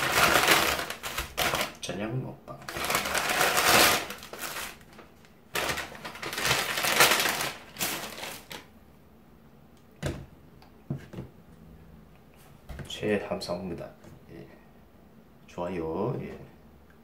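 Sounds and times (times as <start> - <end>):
paper bag rustling: 0.0 - 1.9, 2.6 - 8.7.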